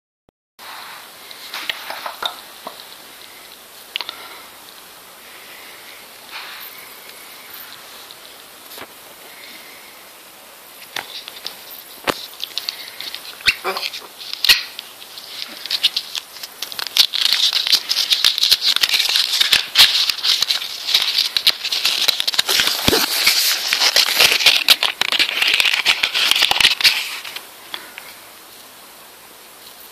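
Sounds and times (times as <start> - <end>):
paper crinkling and tearing: 10.8 - 28.1.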